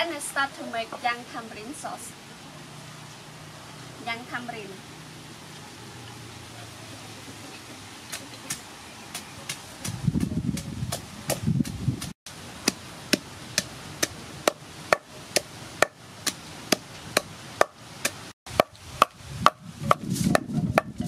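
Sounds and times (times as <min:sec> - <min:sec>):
wooden pestle pounding in mortar: 0:08.5 - 0:21.0.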